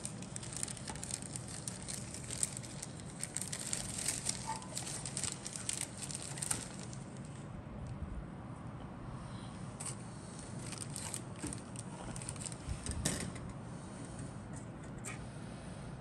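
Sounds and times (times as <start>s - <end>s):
plastic sprues clicking and rustling: 0.0s - 7.4s, 10.6s - 13.4s
steady low hum: 0.0s - 16.0s.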